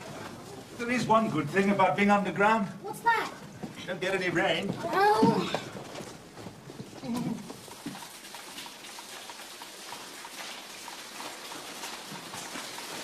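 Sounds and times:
footsteps on rock floor: 0:03.6 - 0:08.1.

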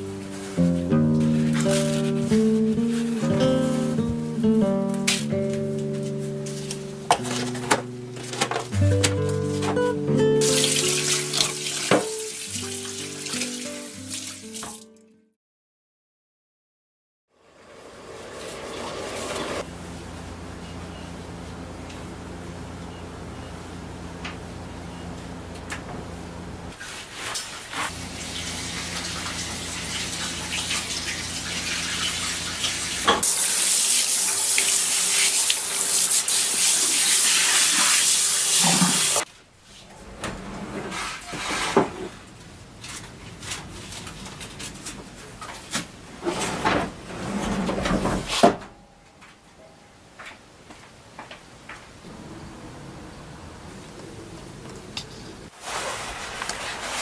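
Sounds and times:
tap running into sink: 0:10.6 - 0:12.3.

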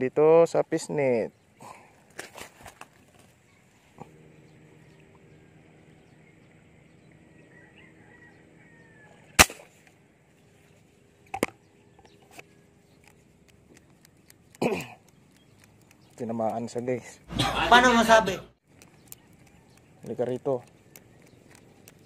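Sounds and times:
airgun shot: 0:09.4 - 0:09.8.

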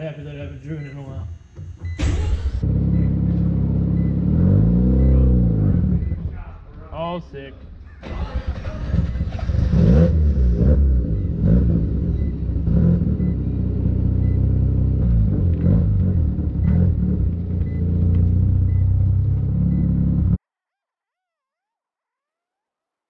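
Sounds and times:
rotary car engine revving: 0:02.6 - 0:06.3, 0:08.0 - 0:20.4.

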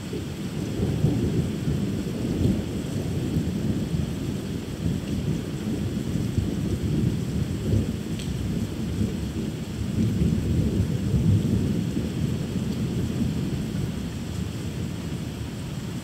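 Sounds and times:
thunder rumbling: 0:00.6 - 0:15.0.

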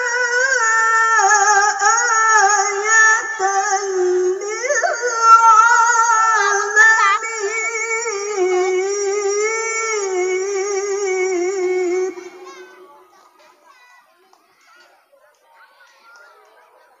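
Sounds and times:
woman reciting melodically: 0:00.0 - 0:13.5.

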